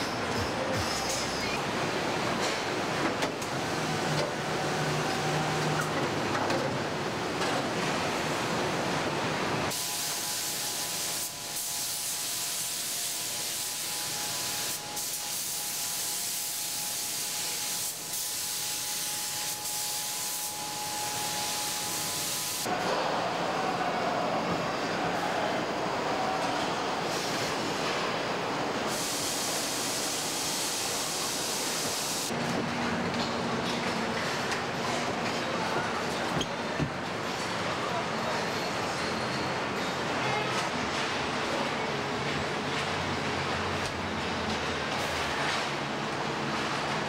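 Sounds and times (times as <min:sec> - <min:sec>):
spray gun hissing: 0:09.7 - 0:22.7, 0:28.9 - 0:32.3
assembly line clatter and hum: 0:32.3 - 0:37.7, 0:38.8 - 0:47.0.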